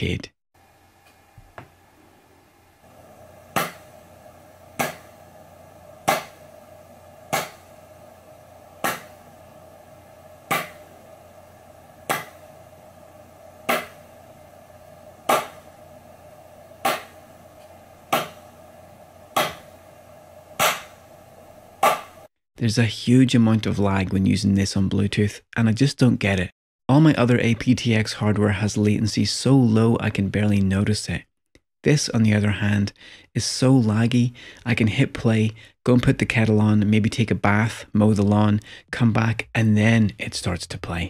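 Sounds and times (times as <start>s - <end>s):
faint steady hum: 0.0s - 30.8s.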